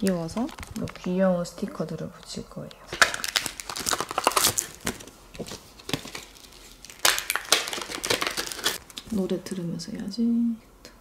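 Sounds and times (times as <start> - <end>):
plastic packaging crackling: 0.0 - 1.3, 2.9 - 9.3.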